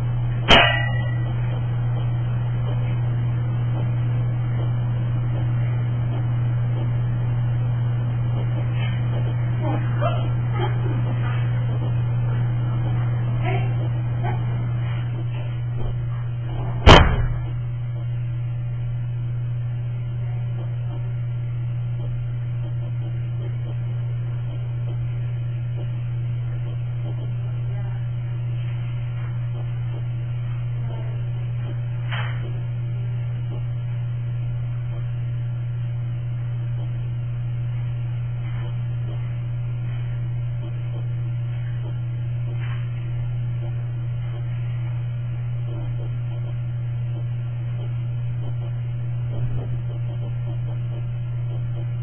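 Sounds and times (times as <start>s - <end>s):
low electrical hum: 0.0s - 52.0s
sharp knock: 16.8s - 17.5s.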